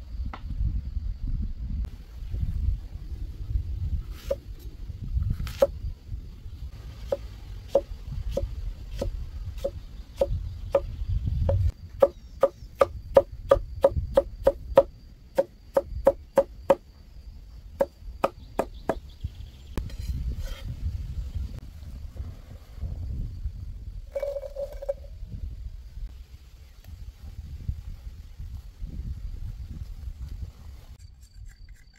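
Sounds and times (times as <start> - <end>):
chopping strokes against wood: 5.4 - 5.7.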